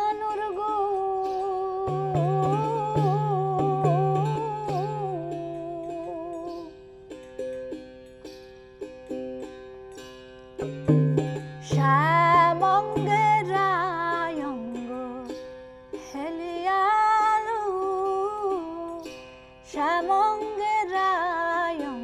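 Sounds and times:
woman singing: 0.0 - 6.8, 11.6 - 22.0
small drum strokes: 0.0 - 16.7
plucked string drone: 0.0 - 22.0.

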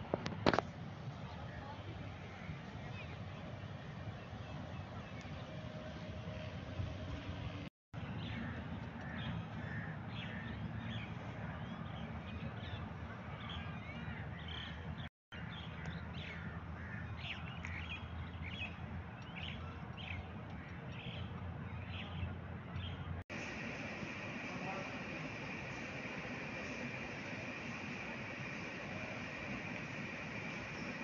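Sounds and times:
birds chirping: 7.1 - 31.0.

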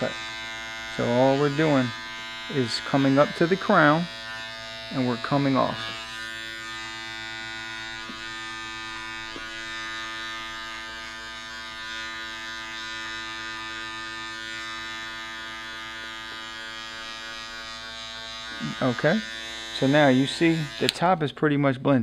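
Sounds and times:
electric hair clipper buzzing: 0.0 - 21.1.

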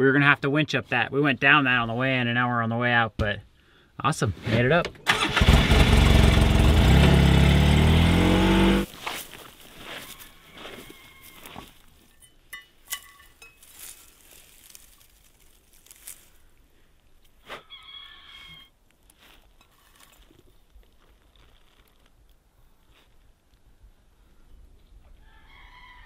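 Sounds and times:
rustling of branches: 8.8 - 23.8
short high-pitched calls: 17.6 - 18.7.

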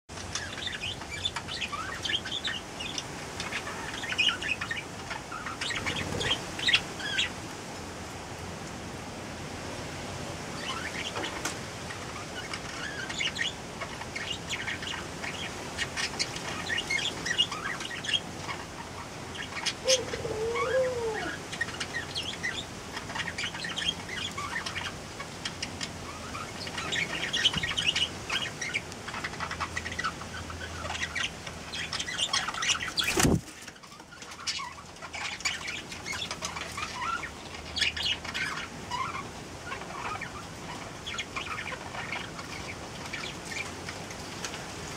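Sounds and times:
bird chirps and clicks: 0.1 - 6.0
low warbling bird call: 19.6 - 21.4.

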